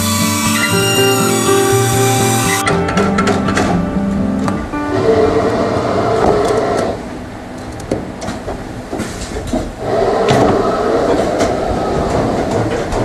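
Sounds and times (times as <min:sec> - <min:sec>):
machine motor hum: 0:00.0 - 0:02.6.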